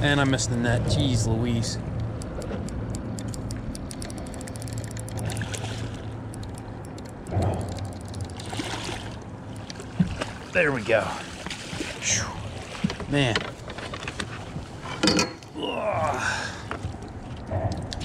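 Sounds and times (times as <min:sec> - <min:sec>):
low hum: 0:00.0 - 0:18.0
fish splashing in water: 0:05.1 - 0:13.1.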